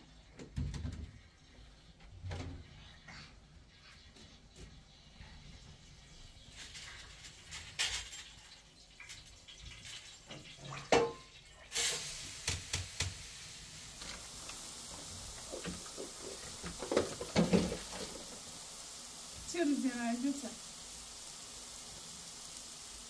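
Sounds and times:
steady hiss: 3.6 - 10.1, 11.3 - 23.0.

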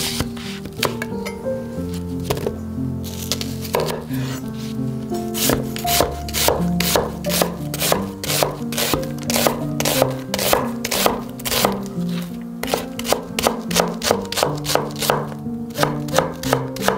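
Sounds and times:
knife slicing onion on board: 3.6 - 4.0, 5.4 - 16.9.

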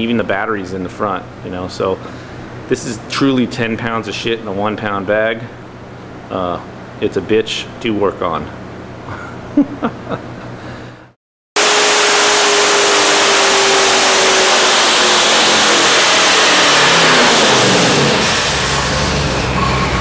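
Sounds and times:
engine running loud: 11.6 - 20.0
falling whine: 11.6 - 20.0.

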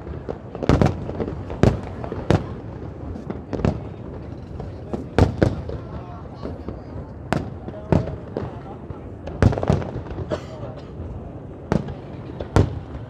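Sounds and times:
fireworks bangs: 0.0 - 13.0.

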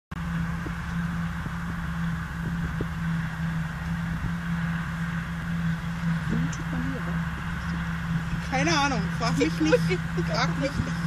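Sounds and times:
tractor engine droning: 0.1 - 11.0.

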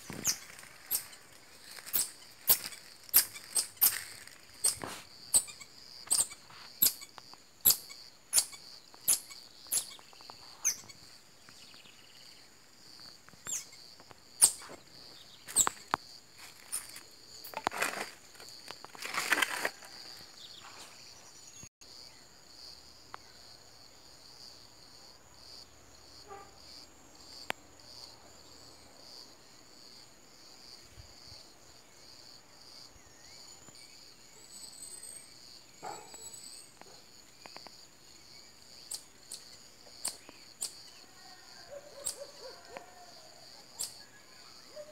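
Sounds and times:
rustling: 0.0 - 5.1, 15.5 - 21.0
insects droning: 0.0 - 44.9
marmoset high-pitched calls: 0.2 - 1.2, 4.6 - 10.0, 10.6 - 11.0, 13.5 - 13.8.

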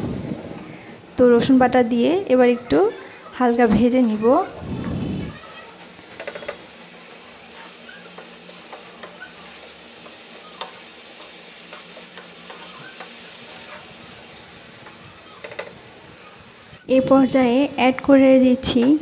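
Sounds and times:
food sizzling in oil: 0.0 - 19.0
spatula scraping pan: 2.9 - 14.0.

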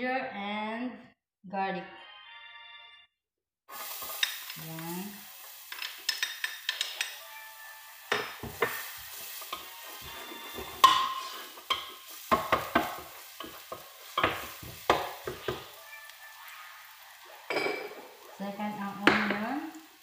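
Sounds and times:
paste sizzling in hot oil: 3.7 - 20.0
utensil scraping metal pot: 8.2 - 15.7.

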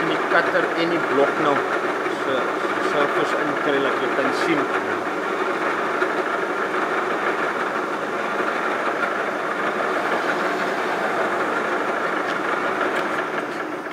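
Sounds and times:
milling machine motor running: 5.8 - 13.7.

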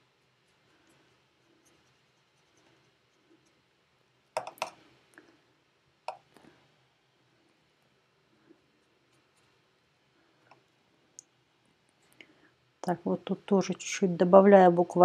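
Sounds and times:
faint room hiss: 0.0 - 15.0.

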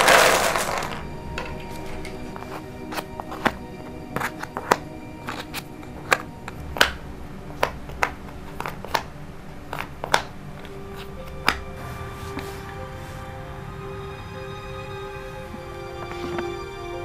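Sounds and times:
puzzle pieces clicking on a table: 0.0 - 3.6, 7.6 - 11.6.

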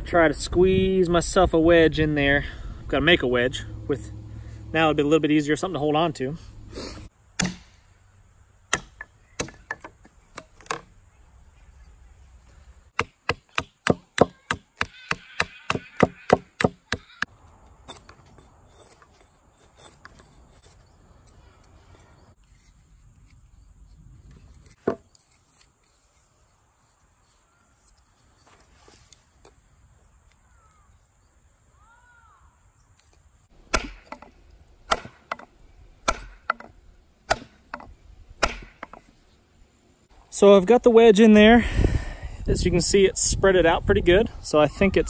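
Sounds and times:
sharp wooden knocks: 8.7 - 10.9, 13.0 - 17.2, 33.7 - 39.1.

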